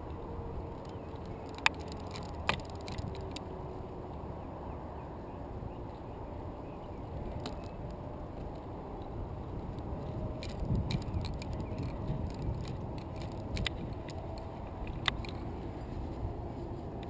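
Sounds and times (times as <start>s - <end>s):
wind rumble on microphone: 0.0s - 17.0s
carabiners clinking together: 0.7s - 3.5s, 10.0s - 15.5s.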